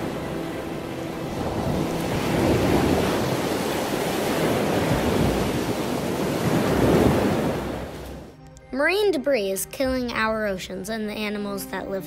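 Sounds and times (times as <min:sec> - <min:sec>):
ocean waves breaking: 0:00.0 - 0:08.4.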